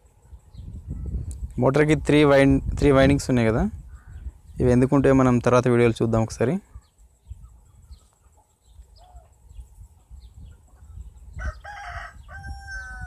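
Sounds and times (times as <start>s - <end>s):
faint fowl calls: 6.5s - 13.0s
rooster crowing: 11.3s - 13.0s.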